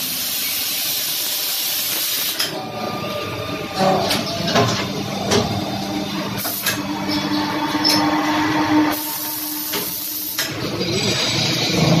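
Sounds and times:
lathe machine hum and whine: 2.4 - 12.0.

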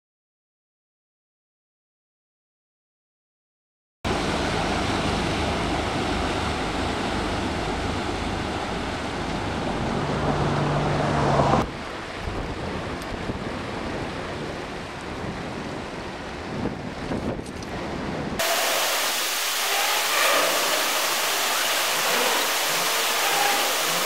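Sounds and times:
propeller wash churning water: 4.1 - 11.6, 18.4 - 24.0
low engine hum: 4.1 - 12.5
wind on microphone: 7.1 - 18.5.

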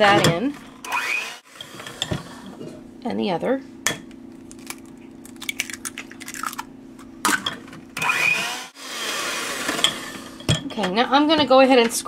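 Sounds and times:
hand mixer motor hum: 8.0 - 10.4.

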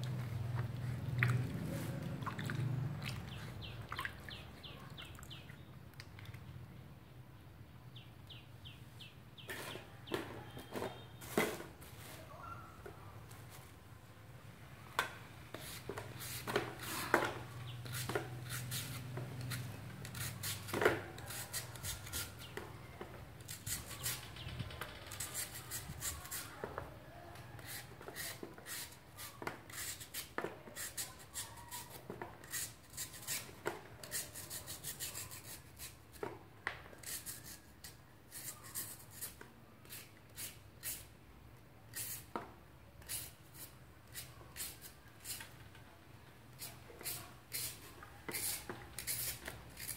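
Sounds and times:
peeler scraping mango: 9.4 - 12.7, 15.5 - 26.8, 27.4 - 36.3, 36.9 - 41.2, 41.9 - 42.4, 43.0 - 45.7, 46.5 - 49.9.

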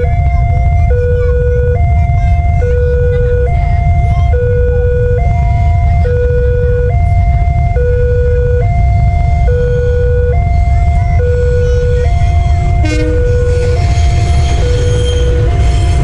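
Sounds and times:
steady low rumble: 0.0 - 16.0
two-tone crossing warning siren: 0.0 - 16.0.

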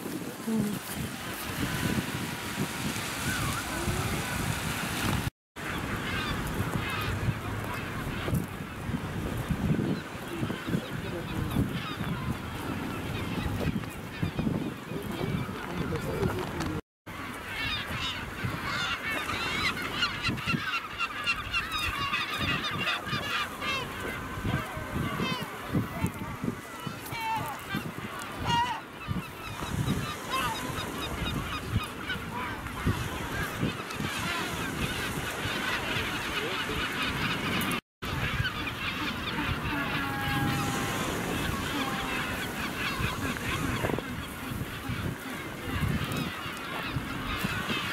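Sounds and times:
seabird colony calling: 0.0 - 47.9
penguins honking: 17.6 - 47.9.

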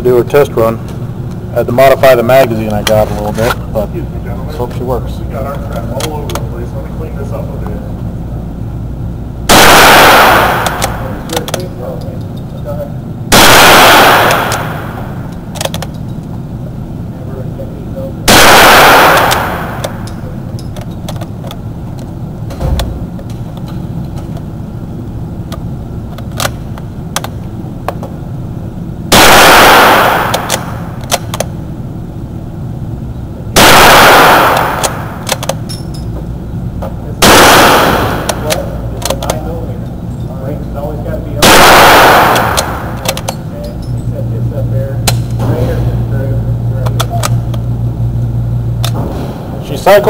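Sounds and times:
rifle shots with echo: 9.5 - 11.6, 13.3 - 15.3, 18.3 - 20.3, 29.1 - 31.4, 33.6 - 35.6, 37.2 - 39.2, 41.4 - 43.4.

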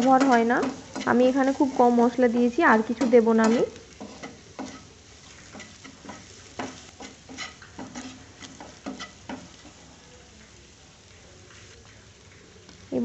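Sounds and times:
wooden spatula scraping pan: 0.0 - 9.9
faint frying sizzle: 0.0 - 13.0.

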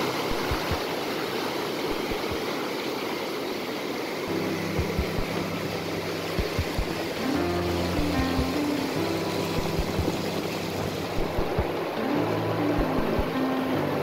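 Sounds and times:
low background music: 0.0 - 1.1, 4.3 - 14.0
surf washing over reef: 0.0 - 14.0.

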